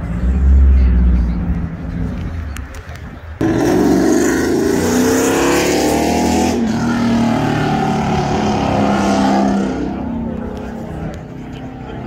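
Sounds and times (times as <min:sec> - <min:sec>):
car engine revving: 0:03.4 - 0:11.9.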